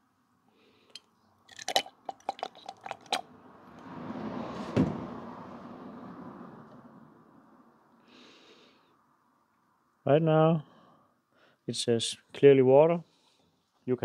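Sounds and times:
single thump: 4.7 - 5.1.

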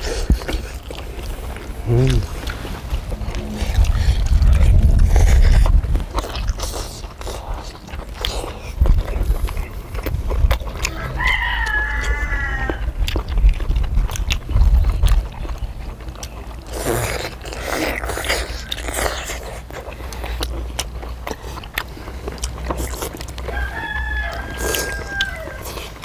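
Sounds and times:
low rumble: 0.0 - 16.2
chewing: 0.0 - 26.0
rooster crowing: 10.8 - 13.0, 23.4 - 25.8.

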